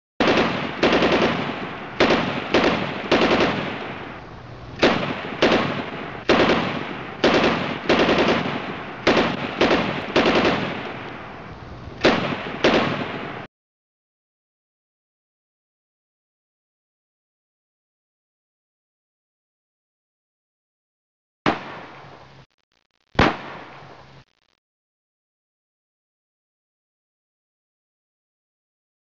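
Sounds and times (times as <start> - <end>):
automatic gunfire bursts: 0.2 - 4.1, 4.8 - 11.0, 12.0 - 13.5.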